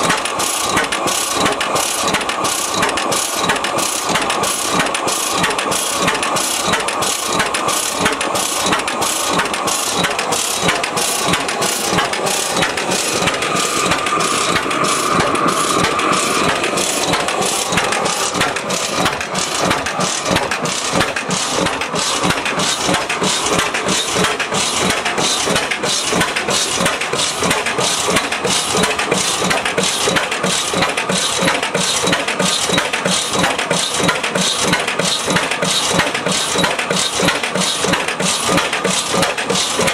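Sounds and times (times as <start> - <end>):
old oilfield engine running: 0.0 - 39.9.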